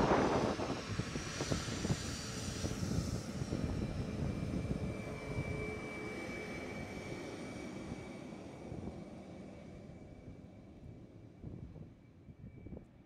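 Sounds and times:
jet engines rumbling: 0.0 - 11.6.

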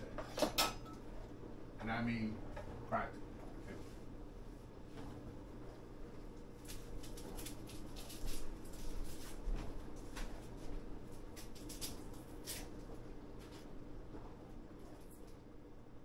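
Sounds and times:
onion crackling and scraping: 6.4 - 13.7.

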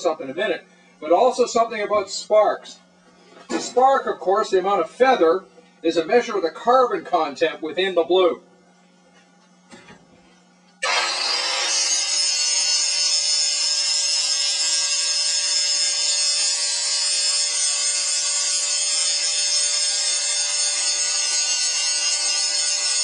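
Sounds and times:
angle grinder grinding metal: 10.8 - 23.0.

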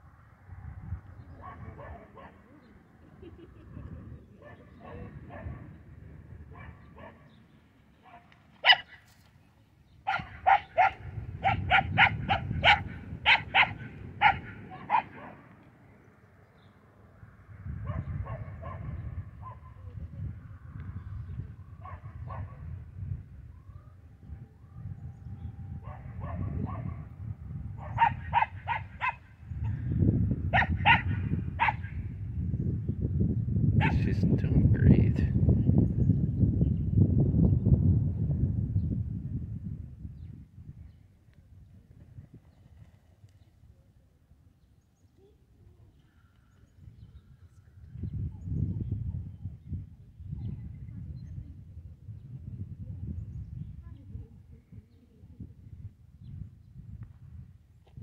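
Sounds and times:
dog barking: 1.4 - 2.5, 4.4 - 5.7, 6.5 - 7.4, 8.0 - 9.1, 10.0 - 15.4, 17.8 - 19.8, 21.8 - 22.7, 25.8 - 27.1, 27.8 - 29.3, 30.5 - 32.0, 33.8 - 34.0.

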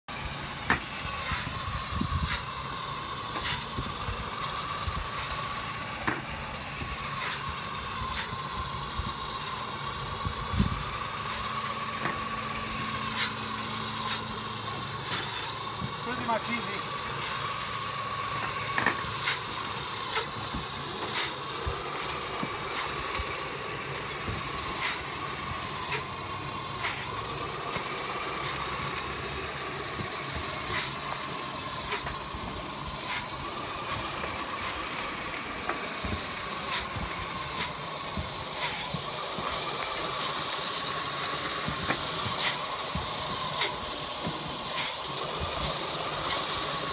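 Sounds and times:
rotating cleaning brush whining: 0.0 - 46.9.

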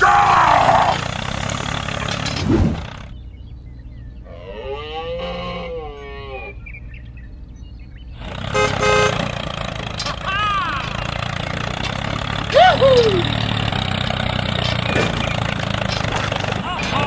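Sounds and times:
low engine-like hum: 0.0 - 17.0
animal-like call: 4.2 - 6.6.

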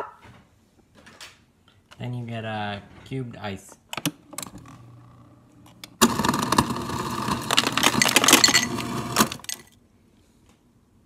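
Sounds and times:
ice dispenser hum: 4.4 - 9.7
ice clattering into a glass: 7.3 - 9.7.

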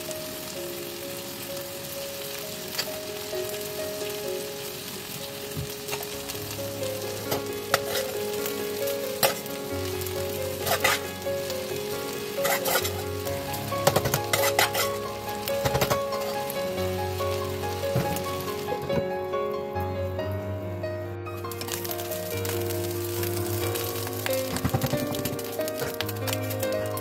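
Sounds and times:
chicken sizzling in a pan: 0.0 - 19.0, 21.5 - 27.0
metal spoon scraping a pan: 7.3 - 8.2, 9.2 - 9.5, 10.5 - 11.5, 12.4 - 16.5.

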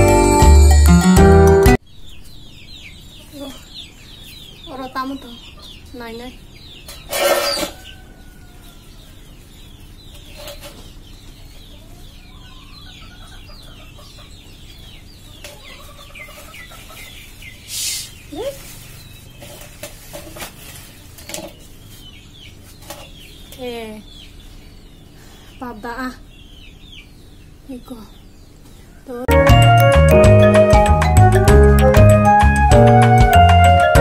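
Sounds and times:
chickens clucking and peeping: 1.9 - 29.4
plastic bag rustling: 18.3 - 22.0.

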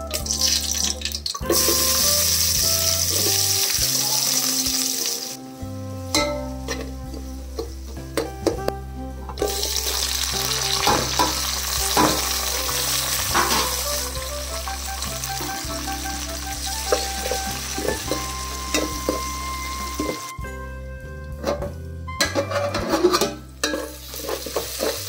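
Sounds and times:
onions sizzling in hot oil: 0.1 - 8.0, 9.4 - 20.3, 23.6 - 25.0
spoon clinking and scraping a pot: 6.1 - 8.6, 16.9 - 20.3, 21.4 - 25.0.

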